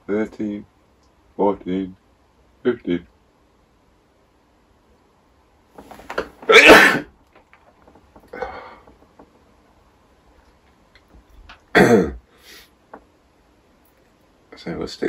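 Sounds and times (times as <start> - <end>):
man sneezing: 6.4 - 7.1, 11.8 - 12.6
sharp intake of breath: 12.3 - 12.8.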